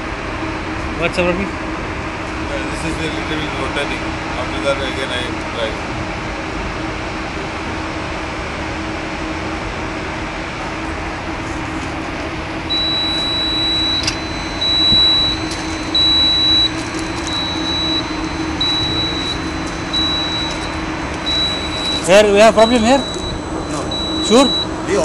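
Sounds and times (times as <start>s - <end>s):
low machinery hum: 0.0s - 25.0s
high-pitched warning beeps: 12.7s - 25.0s.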